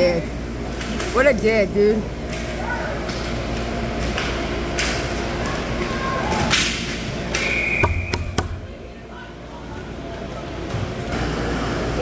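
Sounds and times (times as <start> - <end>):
hockey sticks knocking: 6.5 - 8.7
referee's whistle: 7.4 - 8.4.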